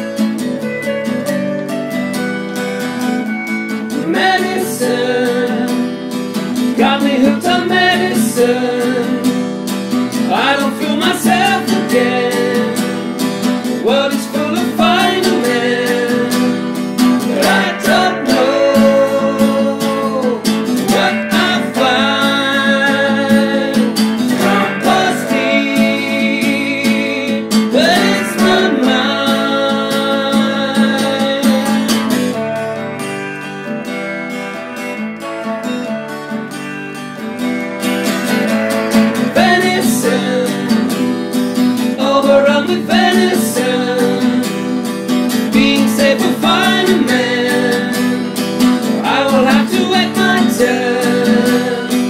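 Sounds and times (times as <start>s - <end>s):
guitars strummed and picked: 0.0s - 52.0s
man singing: 3.9s - 6.0s, 6.6s - 9.5s, 10.1s - 32.3s, 38.9s - 52.0s.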